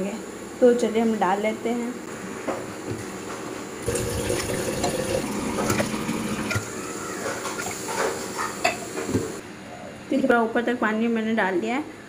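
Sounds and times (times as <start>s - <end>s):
water pouring into a pot: 3.8s - 6.7s.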